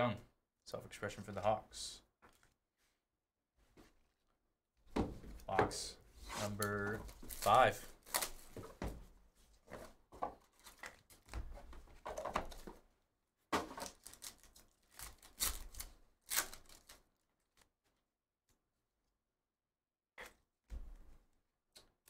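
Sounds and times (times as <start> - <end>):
foil pack crinkling and tearing: 7.1 - 8.5, 13.8 - 17.0.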